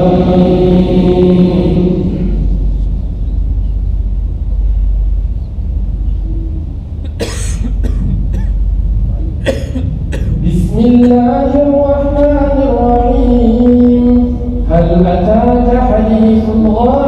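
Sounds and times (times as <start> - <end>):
low hum: 0.0 - 17.0
people coughing: 7.0 - 8.7, 9.3 - 11.4
man chanting melodic recitation: 10.4 - 17.0.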